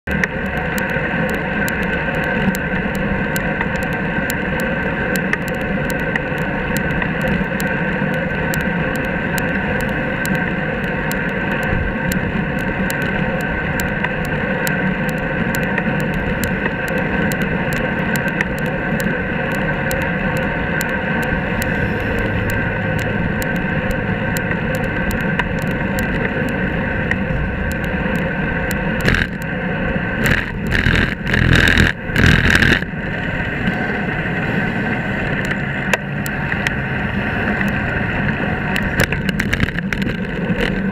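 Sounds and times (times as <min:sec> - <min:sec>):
highway traffic rumble: 0:00.0 - 0:40.9
small ticks: 0:00.1 - 0:29.5, 0:30.2 - 0:32.9, 0:38.7 - 0:40.9
steady tones: 0:15.1 - 0:33.6
truck passing close: 0:21.1 - 0:38.7.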